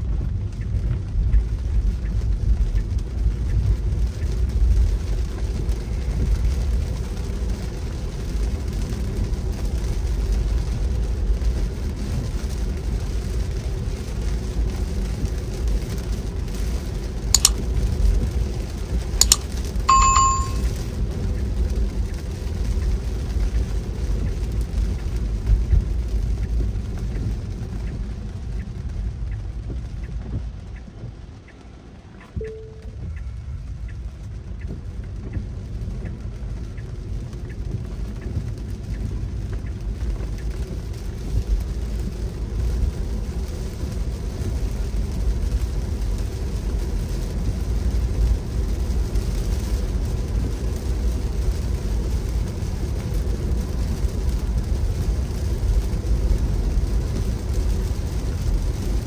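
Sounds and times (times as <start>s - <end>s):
sharp clicks: 17.4s - 17.6s, 19.2s - 20.6s
short bell-like chime: 17.4s - 17.6s, 19.2s - 20.7s.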